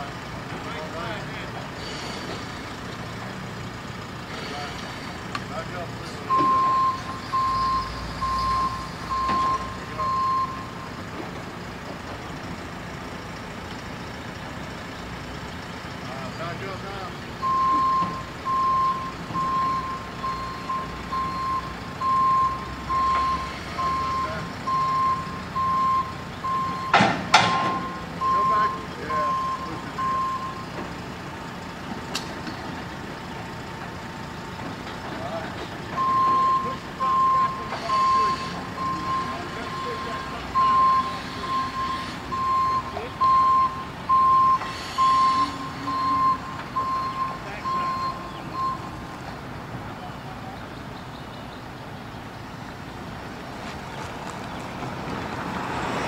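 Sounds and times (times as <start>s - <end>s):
backup alarm beeping: 6.3s - 10.9s, 17.4s - 30.7s, 36.0s - 49.0s
sharp knocks: 26.9s - 27.8s.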